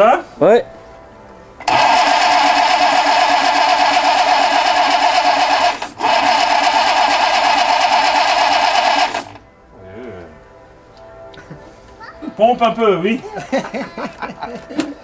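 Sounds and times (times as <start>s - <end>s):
electric starter cranking engine: 1.6s - 9.4s.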